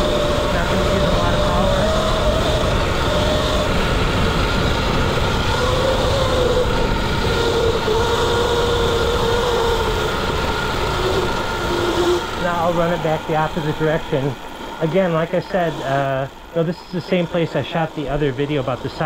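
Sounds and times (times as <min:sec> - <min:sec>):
drivetrain and tyres rattling: 0:00.0 - 0:19.0
electric motor whine: 0:00.0 - 0:19.0.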